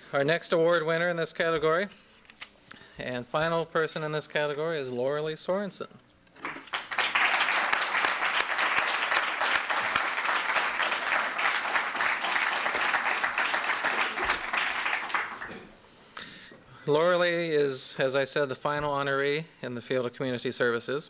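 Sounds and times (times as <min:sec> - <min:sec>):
audience applauding: 0:06.4 - 0:15.8.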